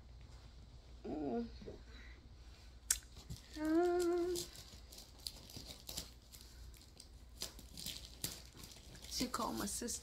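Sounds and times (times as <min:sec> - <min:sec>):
woman humming: 0:01.0 - 0:01.8, 0:03.5 - 0:04.5
faint clicks and rustles: 0:02.4 - 0:10.0.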